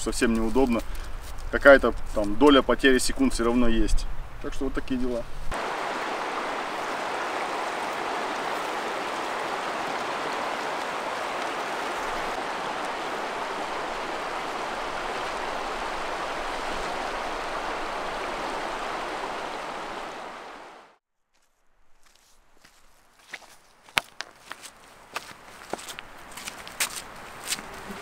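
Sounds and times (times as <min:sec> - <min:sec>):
river water flowing: 0:05.5 - 0:21.0.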